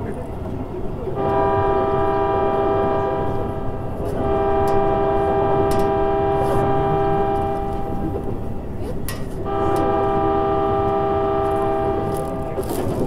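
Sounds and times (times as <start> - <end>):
electric train whine: 0.0 - 13.0
train running rumble: 0.0 - 13.0.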